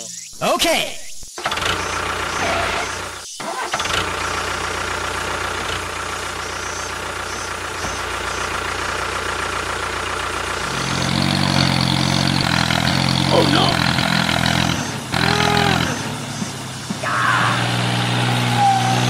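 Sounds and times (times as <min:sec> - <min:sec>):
tractor engine running: 0:01.3 - 0:19.0
deeper engine note: 0:04.3 - 0:19.0.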